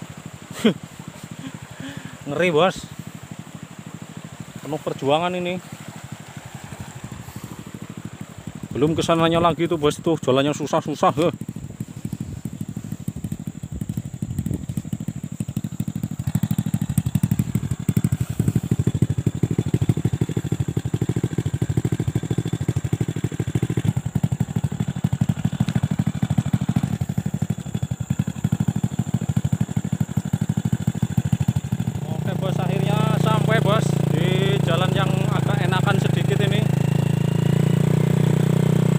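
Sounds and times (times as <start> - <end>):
motorcycle engine running: 0.0 - 38.9.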